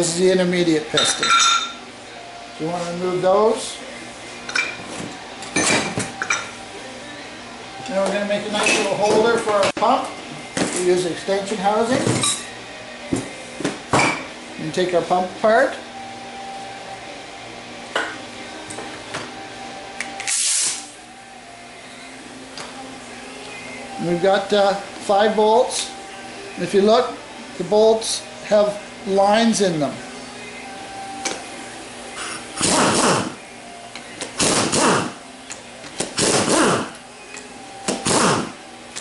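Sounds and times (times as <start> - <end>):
short loud hiss: 20.3 - 20.9
power ratchet whirring: 36.1 - 37.0, 37.9 - 38.6.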